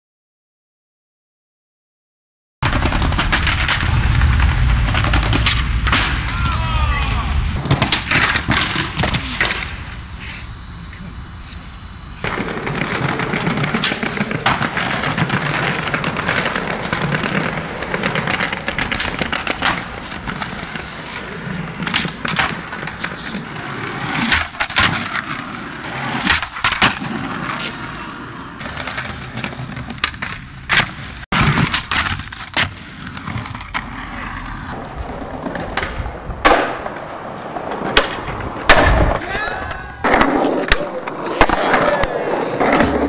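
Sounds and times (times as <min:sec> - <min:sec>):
skateboard wheels rolling on concrete: 0:02.6 - 0:43.0
skateboard clacks popping and landing: 0:21.7 - 0:27.6, 0:28.6 - 0:33.9, 0:34.8 - 0:43.0.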